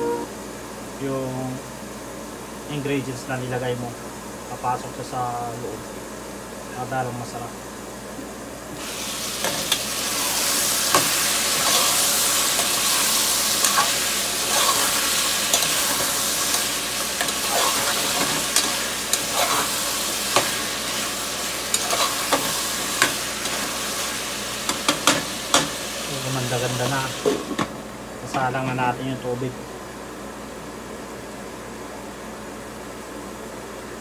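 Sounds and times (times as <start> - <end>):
vegetables sizzling in hot oil: 8.7 - 27.6.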